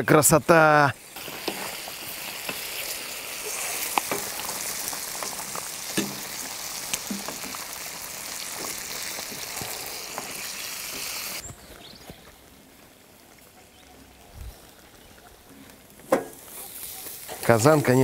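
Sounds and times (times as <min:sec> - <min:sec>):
meat sizzling in a pan: 0:00.1 - 0:11.4, 0:16.4 - 0:18.0.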